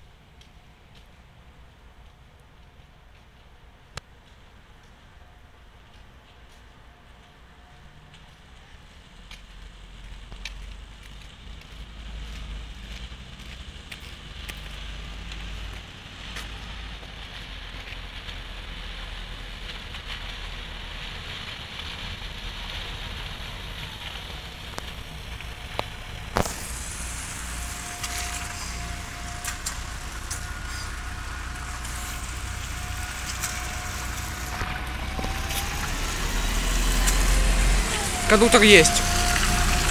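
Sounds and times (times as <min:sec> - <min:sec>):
diesel engine rumbling: 0:08.3 - 0:39.9
tyres hissing through water: 0:09.9 - 0:39.9.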